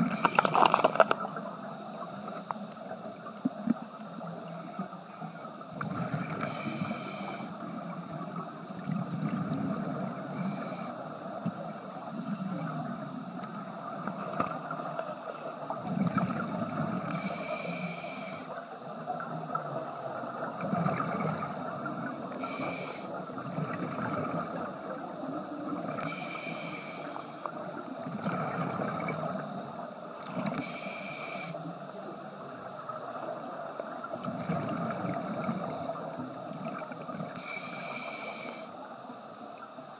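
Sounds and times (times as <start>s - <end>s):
regulator hissing inhale: 0.0s - 1.1s, 6.4s - 8.2s, 10.2s - 11.0s, 16.4s - 18.6s, 21.7s - 23.2s, 26.0s - 27.5s, 30.5s - 31.7s, 37.3s - 38.9s
gurgle of exhaled bubbles: 19.2s - 21.6s, 23.3s - 25.0s, 34.1s - 37.4s.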